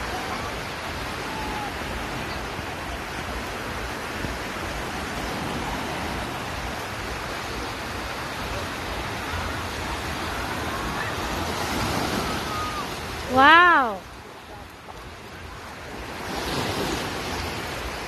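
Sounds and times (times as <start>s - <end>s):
surf washing onto beach: 0.0s - 18.0s
faint distant voices: 6.6s - 16.7s.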